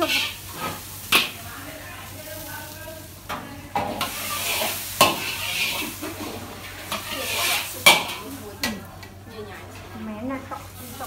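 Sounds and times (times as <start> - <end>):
metal ladle scraping wok: 0.0 - 1.4, 3.8 - 8.4
food sizzling in wok: 0.0 - 11.0
ladle clanking on pan: 3.3 - 6.2.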